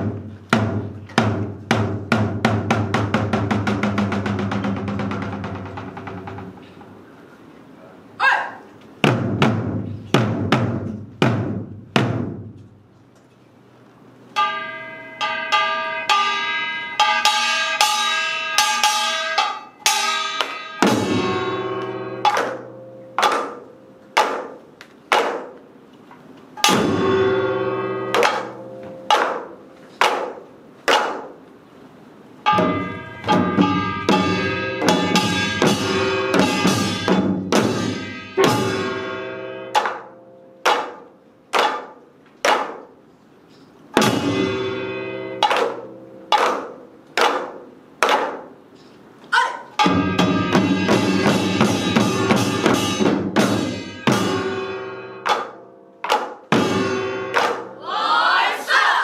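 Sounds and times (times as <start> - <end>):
drum strokes: 0.0 - 7.1, 8.9 - 13.0, 14.4 - 25.9, 26.5 - 43.0, 43.6 - 48.8, 49.8 - 58.8
ringing metal gong beat: 14.4 - 24.0, 26.6 - 29.2, 32.4 - 40.7, 44.0 - 46.4, 49.8 - 57.8
deep gong ring: 26.6 - 29.1, 32.5 - 40.6.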